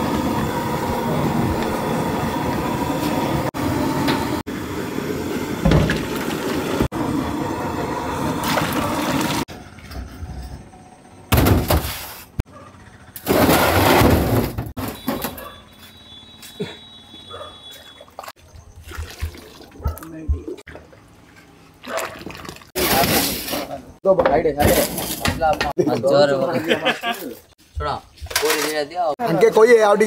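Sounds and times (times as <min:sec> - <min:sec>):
liquid pouring into pot: 0:21.8 - 0:22.7.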